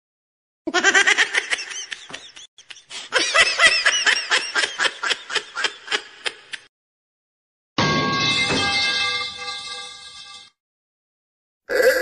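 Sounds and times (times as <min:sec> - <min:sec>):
person laughing high-pitched: 0:00.7 - 0:06.7.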